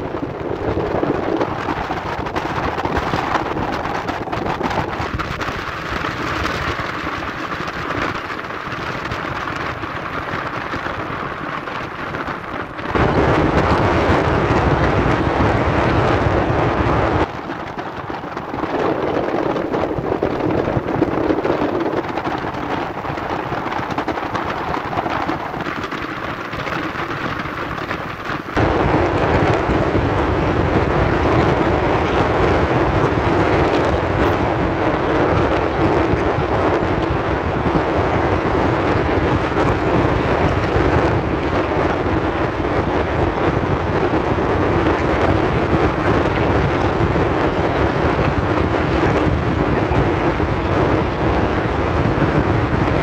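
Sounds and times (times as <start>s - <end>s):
wind on microphone: 0.0s - 53.0s.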